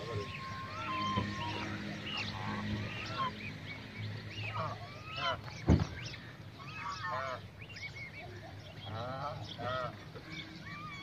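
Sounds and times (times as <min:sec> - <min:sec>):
geese honking: 0:00.0 - 0:11.0
goslings peeping: 0:00.0 - 0:11.0
sharp thump: 0:05.6 - 0:06.0.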